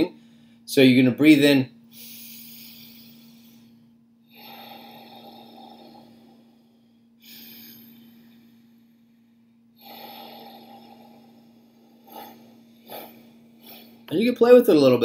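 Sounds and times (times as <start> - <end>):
slow audible breathing: 0.1 - 0.7, 1.8 - 14.1.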